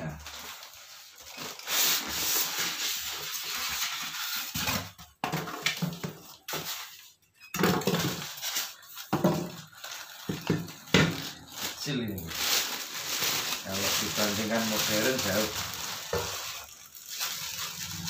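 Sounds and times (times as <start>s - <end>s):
cardboard and plastic wrap rustling: 0.0s - 18.0s.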